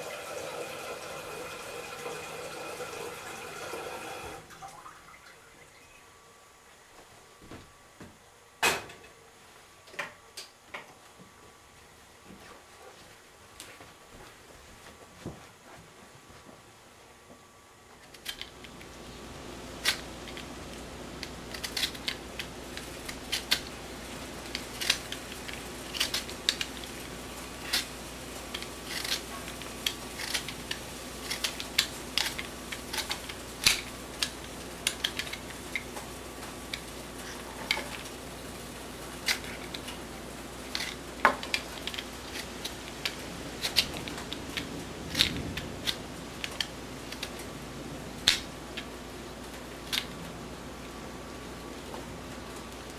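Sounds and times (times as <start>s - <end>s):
steady low hum: 4.0s - 52.9s
potato peeling scrapes: 19.6s - 36.0s, 36.7s - 47.4s.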